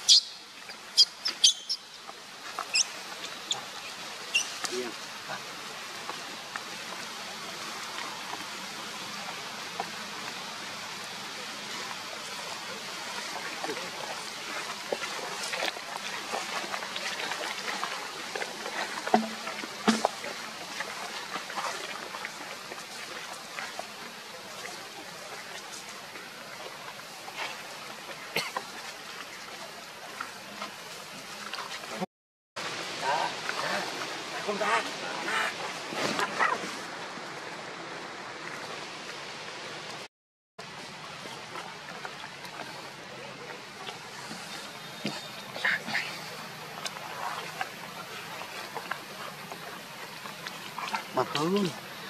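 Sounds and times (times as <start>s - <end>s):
outdoor background hiss: 0.0s - 32.0s.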